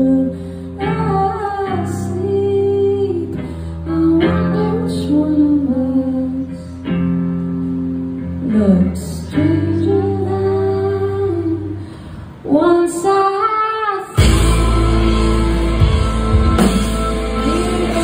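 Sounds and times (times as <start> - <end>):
woman singing: 0.0 - 7.0, 8.4 - 11.8, 12.4 - 15.9, 17.2 - 18.0
electric guitar: 0.0 - 13.4, 14.0 - 18.0
rock band with drums: 14.1 - 18.0.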